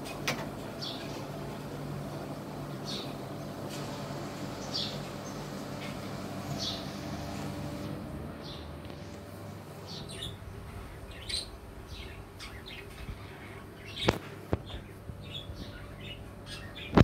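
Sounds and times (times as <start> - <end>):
budgerigars chirping: 9.9 - 10.4, 11.1 - 13.0.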